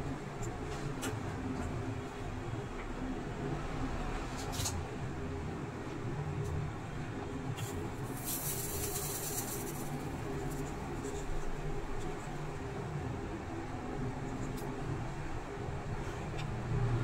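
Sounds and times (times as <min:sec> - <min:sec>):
scratchy rubbing noise: 0:08.0 - 0:11.2.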